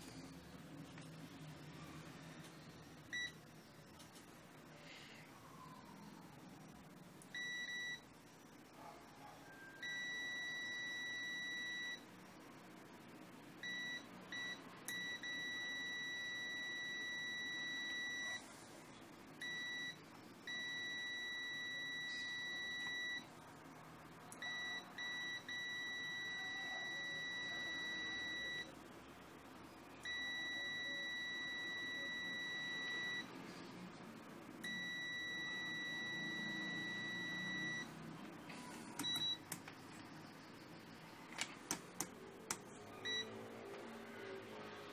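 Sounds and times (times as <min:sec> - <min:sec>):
multimeter continuity beep: 0:02.6 - 0:04.1, 0:06.6 - 0:12.4, 0:13.6 - 0:18.4, 0:19.4 - 0:23.3, 0:24.3 - 0:28.8, 0:30.0 - 0:33.3, 0:34.6 - 0:37.9, 0:39.0 - 0:39.6, 0:43.0 - 0:43.4.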